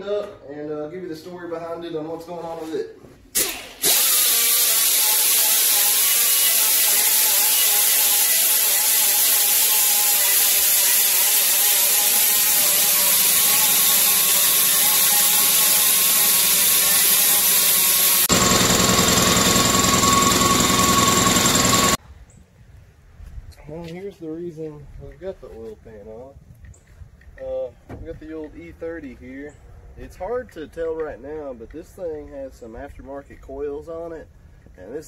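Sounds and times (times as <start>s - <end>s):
handheld power tool on metal: 3.4s - 22.0s.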